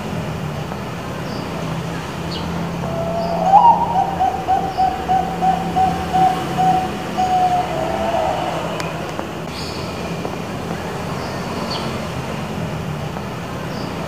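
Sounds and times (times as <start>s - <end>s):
dove cooing song: 2.8s - 9.4s.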